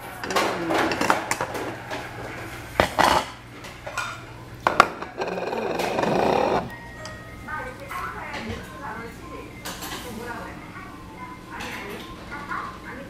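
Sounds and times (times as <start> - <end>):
cutlery clinking: 0.0 - 7.2.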